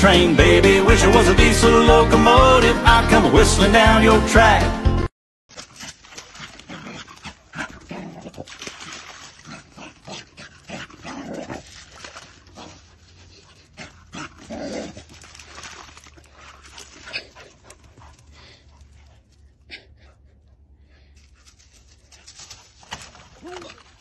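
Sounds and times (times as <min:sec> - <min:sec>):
dog splashing through water: 0:05.5 - 0:18.4, 0:22.2 - 0:24.0
dog vocal noises: 0:05.6 - 0:20.7.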